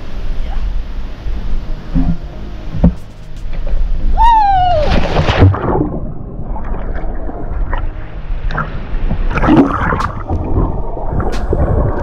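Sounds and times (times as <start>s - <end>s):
person yelling: 4.2s - 4.9s
splash into water: 4.7s - 6.0s
underwater gurgling and bubbling: 4.8s - 12.0s.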